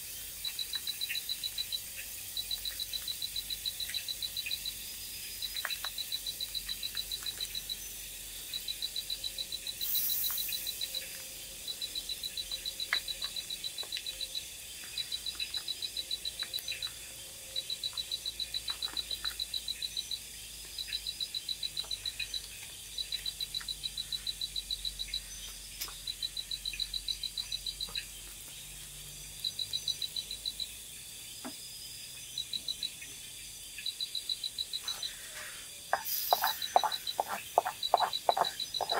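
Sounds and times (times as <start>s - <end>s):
high hiss of insects: 0.0s - 38.9s
rapid high-pitched pulsed call: 8.5s - 16.8s, 34.0s - 38.9s.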